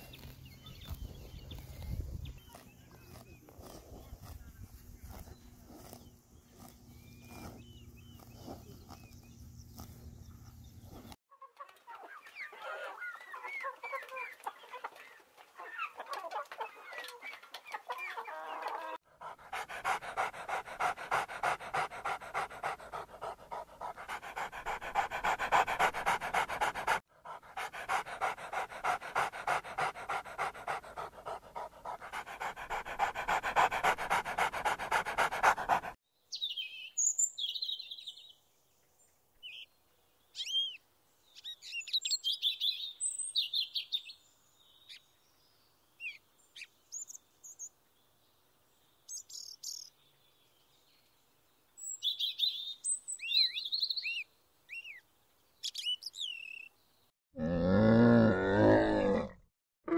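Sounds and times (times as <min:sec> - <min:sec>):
puppy panting: 0:19.2 - 0:36.0
bird chirps and calls: 0:40.3 - 0:47.8, 0:51.8 - 0:56.9.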